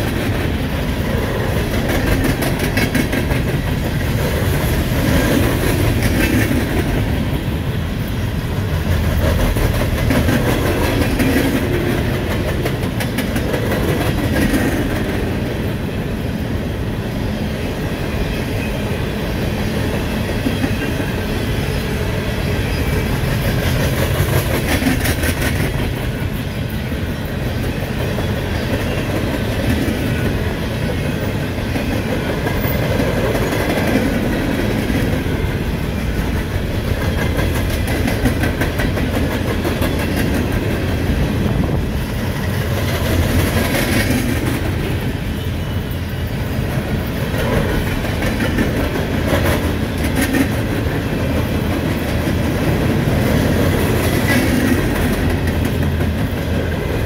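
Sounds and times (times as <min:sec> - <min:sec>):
clickety-clack over rail joints: 0:00.0 - 0:16.5, 0:17.5 - 0:57.0
train wheels rumbling on rail: 0:00.0 - 0:57.0.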